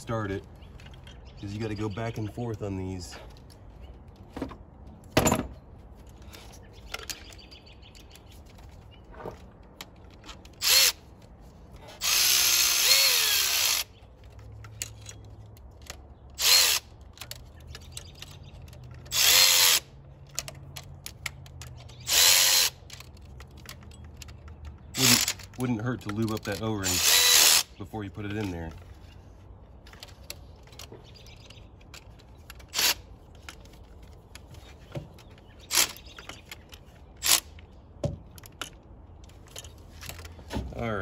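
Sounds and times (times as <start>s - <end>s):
cordless electric ratchet running: 10.6s - 11.1s, 12.0s - 14.0s, 16.4s - 16.9s, 19.1s - 20.0s, 21.9s - 23.1s, 25.0s - 25.5s, 26.8s - 27.7s.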